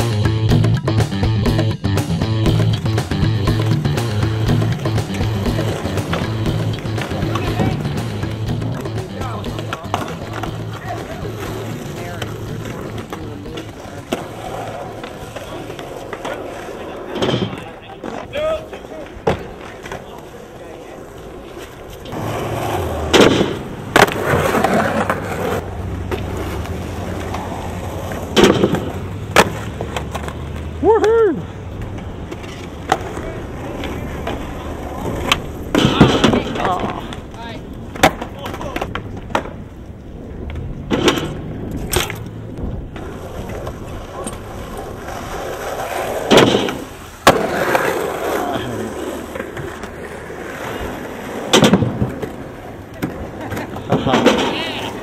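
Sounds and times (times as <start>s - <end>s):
skateboard clacking on ground: 0.0s - 55.0s
skateboard wheels rolling on asphalt: 0.0s - 55.0s.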